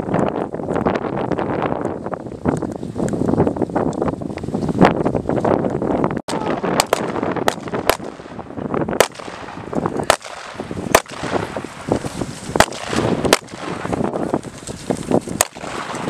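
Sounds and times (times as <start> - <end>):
rifle shots: 6.6 - 8.4, 9.0 - 11.7, 12.5 - 14.1, 15.4 - 16.0.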